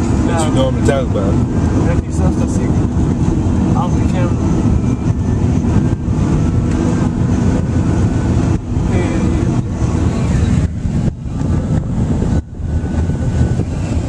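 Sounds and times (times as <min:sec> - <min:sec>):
road and wind noise in car: 0:00.0 - 0:14.0.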